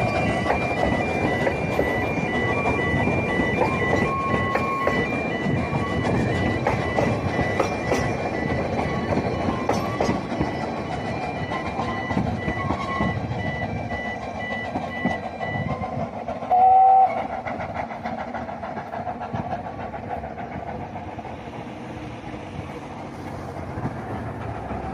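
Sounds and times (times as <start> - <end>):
steam train rumble and clatter: 0.0 - 24.9
train whistle blast: 16.5 - 17.3.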